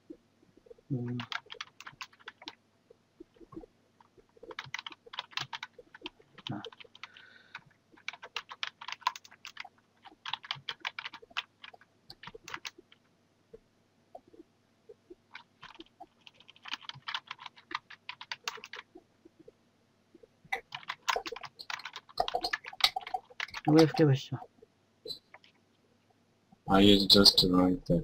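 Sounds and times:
computer keyboard typing: 0.6s - 2.6s, 3.3s - 13.0s, 15.3s - 19.0s, 20.5s - 24.0s.

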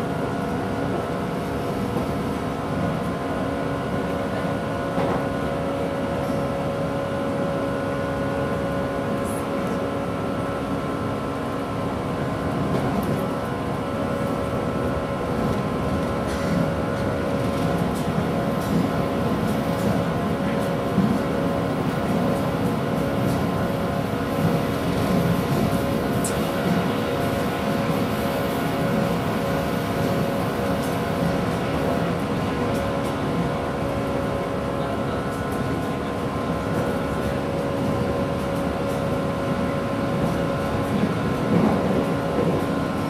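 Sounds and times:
train wheels rumbling on rail: 0.0s - 43.0s.

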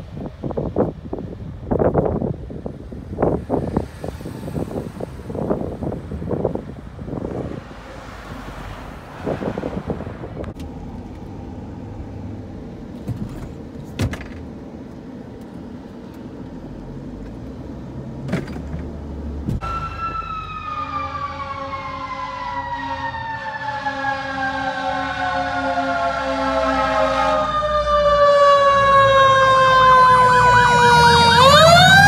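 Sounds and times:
road and wind noise in car: 0.0s - 24.1s, 24.7s - 32.0s
fire engine siren wailing: 19.6s - 32.0s.

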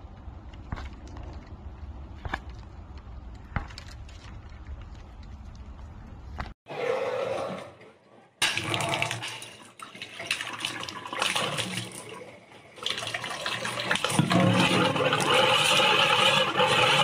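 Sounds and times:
tap water running into sink: 12.8s - 17.0s.

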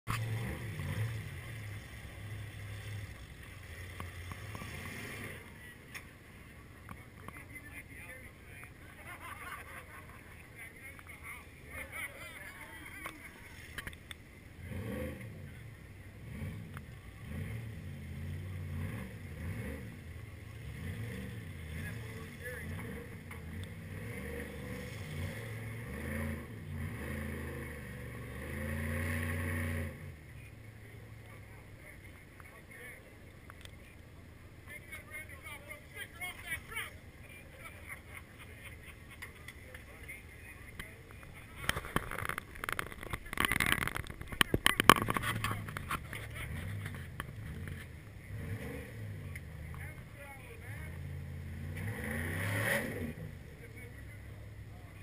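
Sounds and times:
off-road engine droning: 0.0s - 55.0s
truck engine revving hard: 0.1s - 3.2s, 3.8s - 5.5s, 14.6s - 15.6s, 16.2s - 30.2s, 46.4s - 49.7s, 50.6s - 53.4s.

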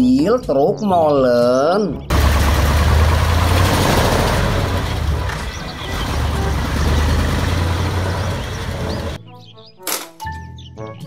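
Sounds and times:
truck engine low rumble: 2.1s - 9.2s.

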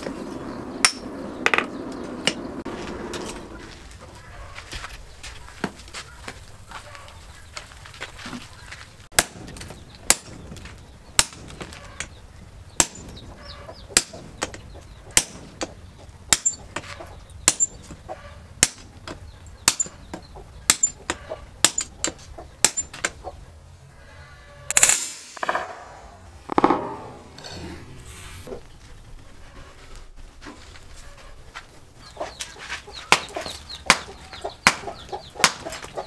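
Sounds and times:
hammer striking metal on anvil: 16.3s - 16.6s, 19.7s - 19.9s.

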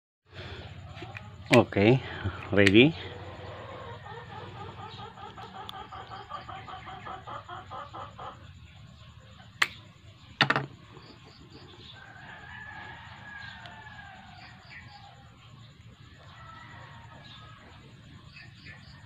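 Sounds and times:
chicken clucking: 0.6s - 9.8s
rooster crowing faintly: 11.6s - 19.0s.

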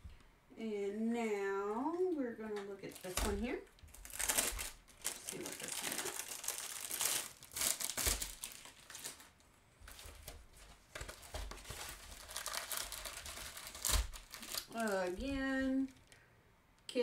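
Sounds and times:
plastic sleeve crinkling: 2.7s - 16.2s
paper rustling: 2.9s - 16.1s.

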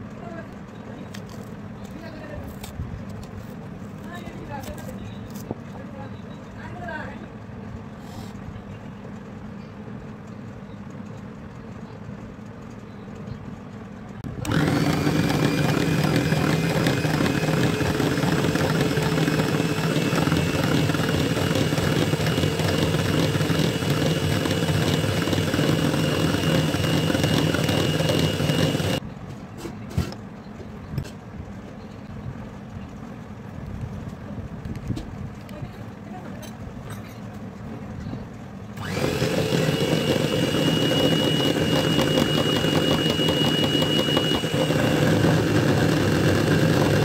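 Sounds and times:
electric hand mixer whipping cream: 14.4s - 29.0s, 38.8s - 47.0s.

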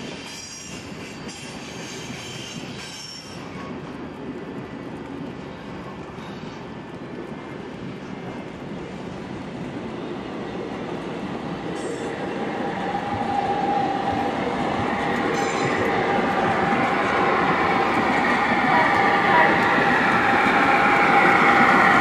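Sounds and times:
high steady squealing tone: 15.1s - 17.2s.

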